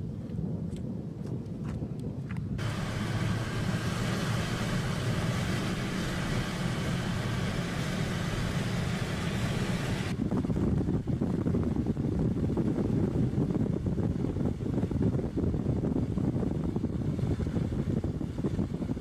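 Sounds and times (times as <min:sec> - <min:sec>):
car engine and road rumble: 0:00.1 - 0:19.0
constant hiss: 0:02.6 - 0:10.1.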